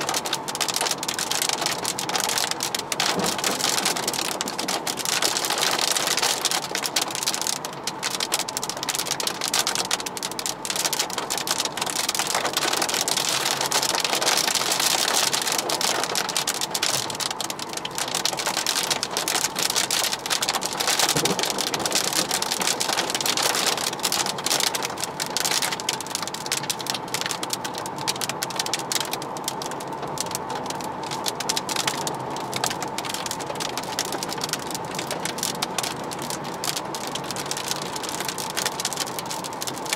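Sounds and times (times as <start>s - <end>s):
rain on a car roof: 0.0s - 39.9s
tyres on wet road: 0.0s - 39.9s.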